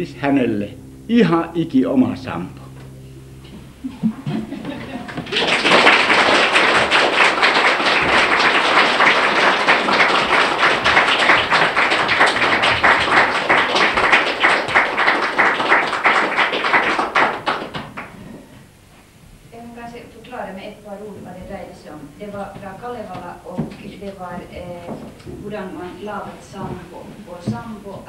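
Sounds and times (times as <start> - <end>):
audience applauding: 4.0 - 18.6.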